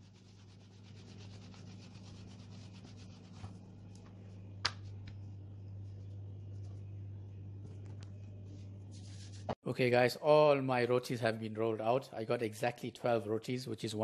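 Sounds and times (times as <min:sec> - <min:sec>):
rolling pin rubbing on dough: 0:00.0 - 0:03.6
low hum: 0:00.0 - 0:09.6.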